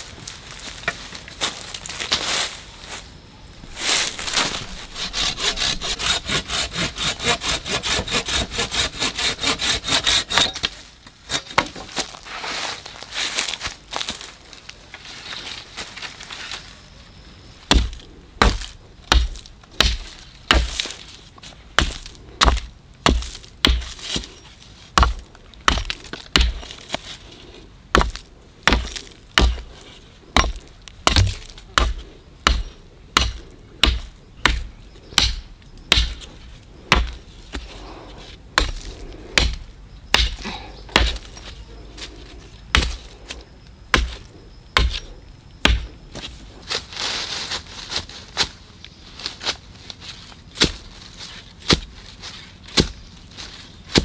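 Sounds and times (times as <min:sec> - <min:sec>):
wood being chopped: 0:04.1 - 0:12.0, 0:17.7 - 0:20.9, 0:21.8 - 0:24.4, 0:25.0 - 0:27.0, 0:27.9 - 0:29.7, 0:30.4 - 0:36.3, 0:36.9 - 0:37.2, 0:38.6 - 0:41.5, 0:42.7 - 0:43.1, 0:43.9 - 0:46.3, 0:51.6 - 0:51.9, 0:52.7 - 0:53.0.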